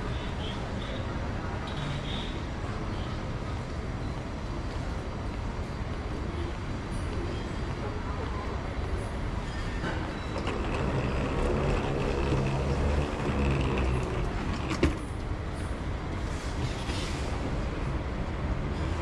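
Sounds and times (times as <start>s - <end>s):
vehicle low rumble: 8.6s - 19.0s
pitched motor hum: 10.3s - 15.1s.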